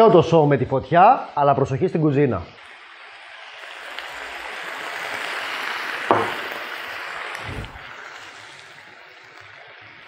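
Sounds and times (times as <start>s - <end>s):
liquid sizzling in hot pan: 2.6s - 10.0s.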